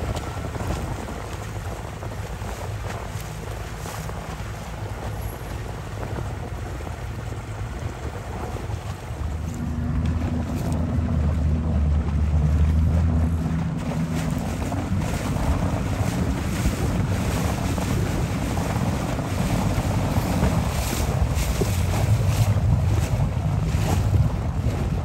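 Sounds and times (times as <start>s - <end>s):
low motor hum: 0.0s - 25.0s
water splashing and lapping: 0.0s - 25.0s
wind buffeting microphone: 0.0s - 25.0s.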